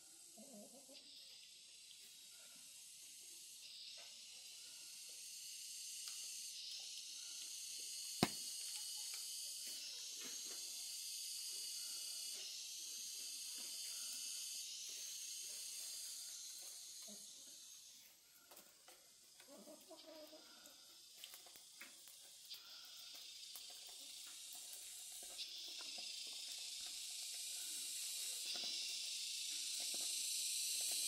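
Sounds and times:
high-pitched hiss: 22.1s - 31.0s.

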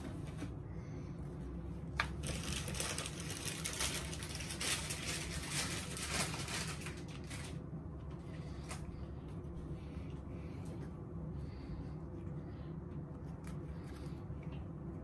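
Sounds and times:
plastic crinkling and rustling: 2.0s - 7.6s.

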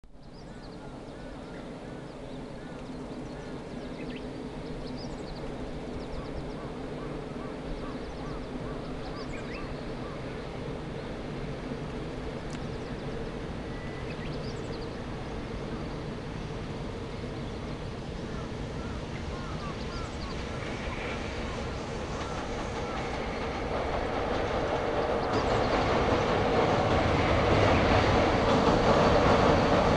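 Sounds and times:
small birds chirping: 12.3s - 16.3s, 17.0s - 27.9s.

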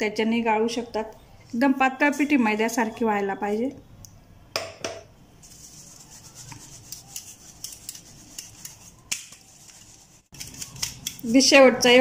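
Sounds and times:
flour sifting through sieve: 5.4s - 11.1s.

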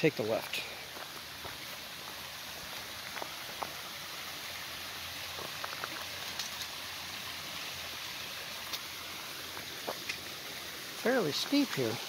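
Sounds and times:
stream running over rocks: 0.0s - 12.0s
footsteps on gravel: 0.5s - 3.8s.

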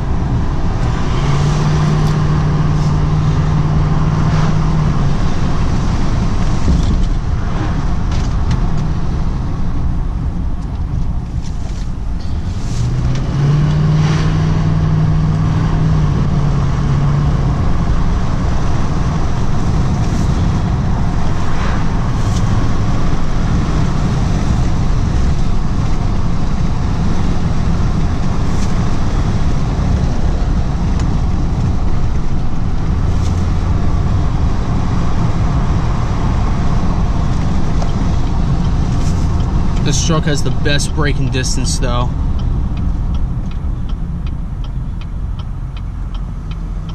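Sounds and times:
road noise: 0.0s - 46.9s
truck engine rumble: 0.0s - 46.9s
held engine tone: 13.4s - 46.9s.

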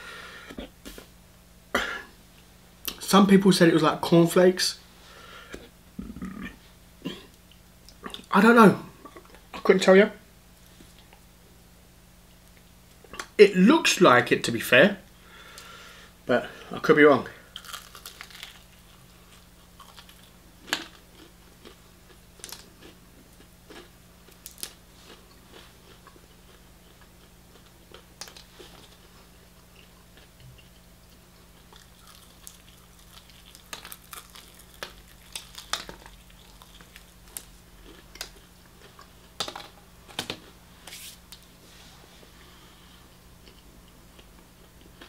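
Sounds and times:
person chewing crispy chicken: 17.5s - 39.4s.

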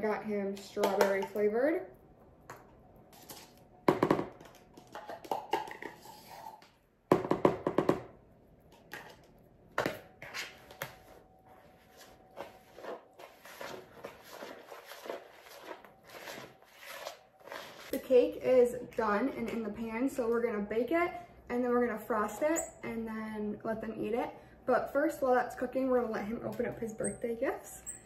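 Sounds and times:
spatula stirring and scraping batter: 3.1s - 3.6s, 10.2s - 18.0s.

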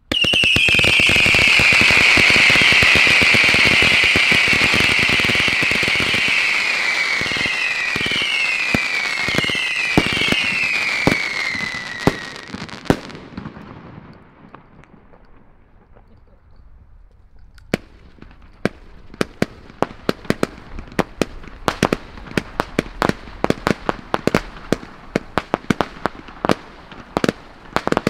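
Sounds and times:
sharp firework cracks: 0.0s - 16.8s, 17.6s - 28.0s
firework crackle: 0.0s - 28.0s
firework screaming whistle: 0.1s - 12.9s.

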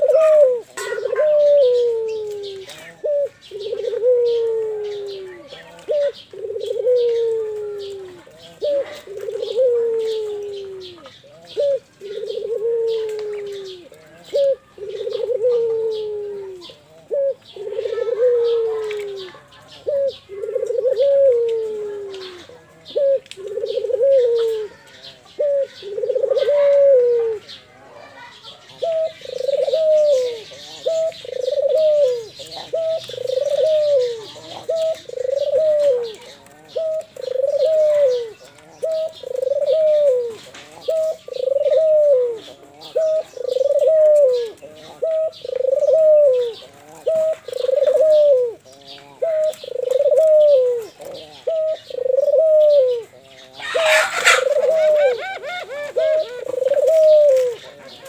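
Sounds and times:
dove cooing: 0.0s - 58.0s.

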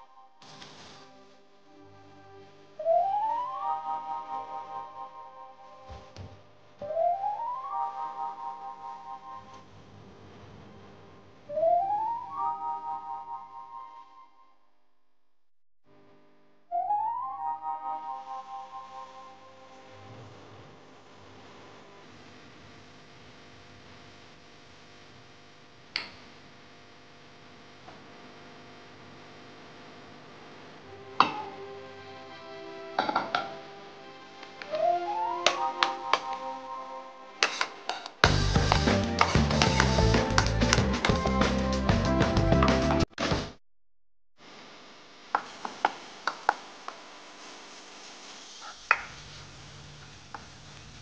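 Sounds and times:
background music: 0.0s - 10.0s, 11.5s - 14.6s, 16.7s - 20.7s, 30.8s - 43.5s
faint steady hum: 0.0s - 14.5s, 17.4s - 41.0s, 44.4s - 51.0s
spice paste sizzling in pan: 37.4s - 40.8s
spatula tapping pan: 37.4s - 41.2s.

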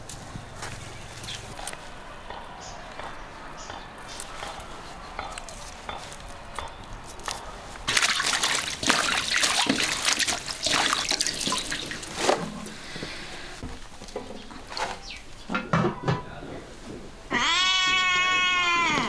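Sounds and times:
water sloshing in steel basin: 7.9s - 13.2s.

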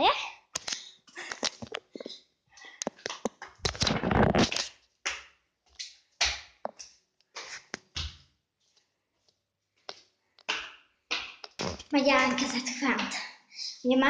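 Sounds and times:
phone rustling: 1.3s - 2.1s.

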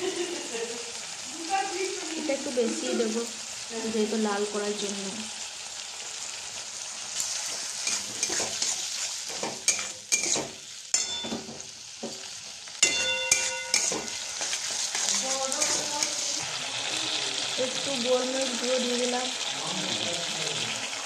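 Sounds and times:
vegetables sizzling in pan: 0.0s - 21.0s
metal spatula scraping pan: 7.2s - 12.2s, 12.8s - 16.4s
spatula knocking metal pan: 9.3s - 14.6s.

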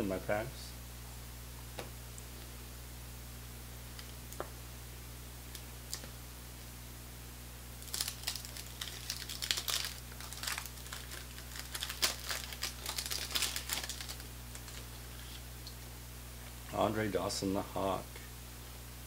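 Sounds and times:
paper wrapper tearing and crinkling: 7.8s - 15.4s.

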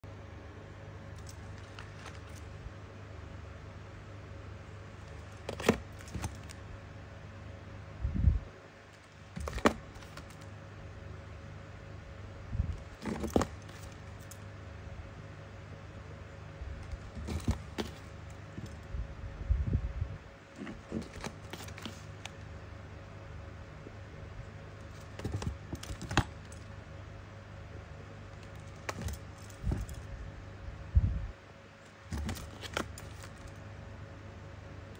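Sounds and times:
steady low hum: 0.0s - 34.9s
boxes clicking and clacking: 16.9s - 18.8s, 24.9s - 26.6s.

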